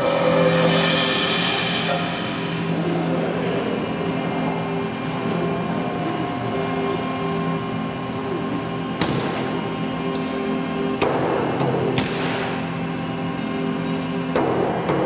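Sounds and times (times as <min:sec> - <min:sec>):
droning chord of held tones: 0:00.0 - 0:08.8.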